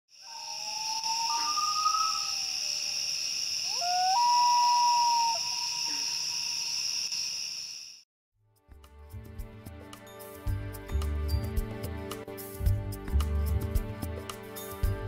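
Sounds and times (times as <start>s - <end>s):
high-pitched insect chorus: 0.1s - 8.0s
loons wailing: 0.2s - 6.3s.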